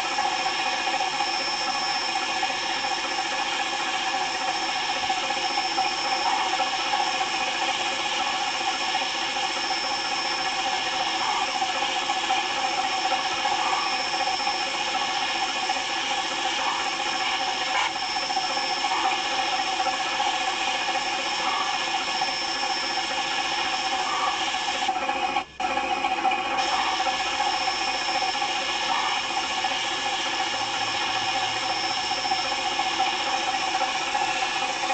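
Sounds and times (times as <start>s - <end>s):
toy train motor whirring: 0.0s - 34.9s.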